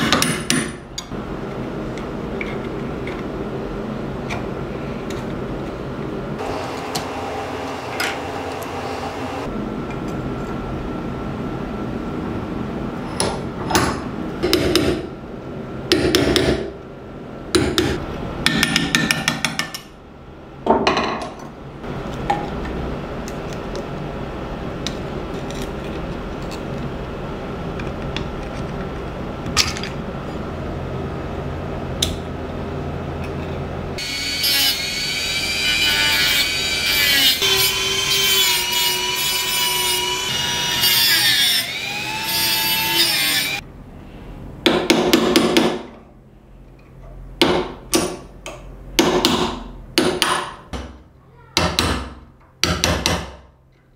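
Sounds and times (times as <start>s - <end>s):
rotary tool whining grinding metal: 34.0s - 43.6s.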